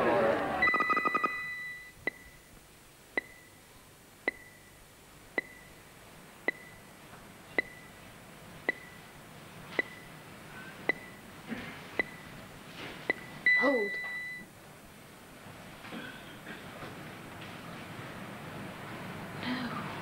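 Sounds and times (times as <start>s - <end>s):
short high pings: 0.6s - 2.4s.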